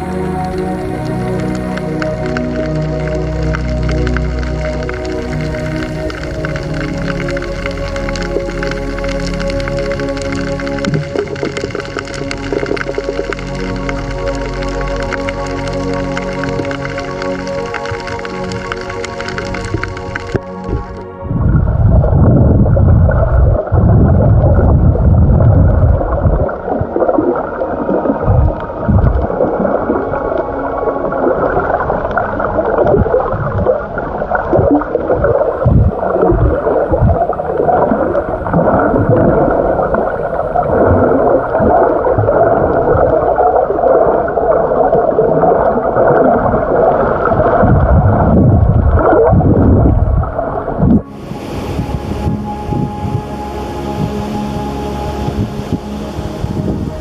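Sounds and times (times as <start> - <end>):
underwater sloshing and gurgling: 0.0 - 57.0
dull low thumps: 19.7 - 29.8, 34.4 - 43.2, 47.5 - 51.1.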